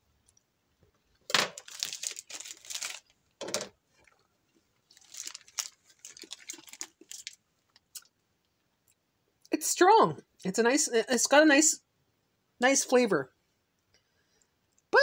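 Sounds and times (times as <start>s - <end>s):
loud crinkling and crunching: 1.4s - 3.2s, 4.8s - 8.1s.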